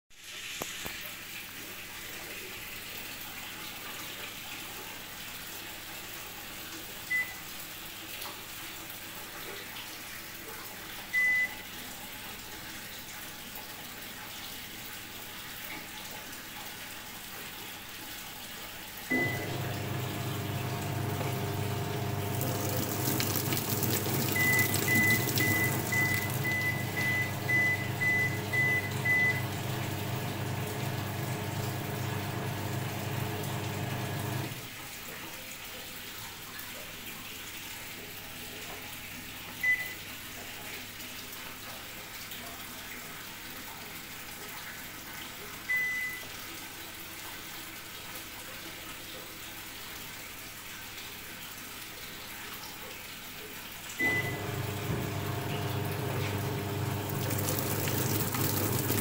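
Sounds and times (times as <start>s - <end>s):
washing machine panel beeps: 7.1s - 7.4s, 11.2s - 11.6s, 19.1s - 34.6s, 39.6s - 40.0s, 45.7s - 46.2s, 54.0s - 59.0s
water rushing: 19.1s - 34.6s, 54.0s - 59.0s
pump humming: 19.1s - 34.7s, 54.0s - 59.0s.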